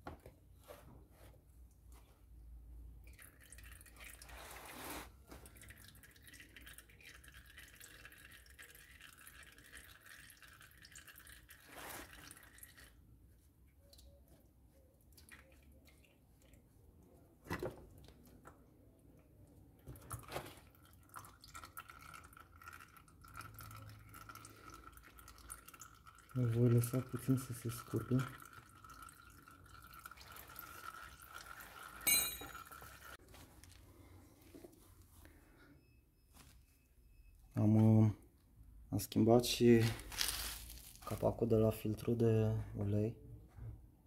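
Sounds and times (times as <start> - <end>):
oil dripping into pan: 20.8 - 33.2.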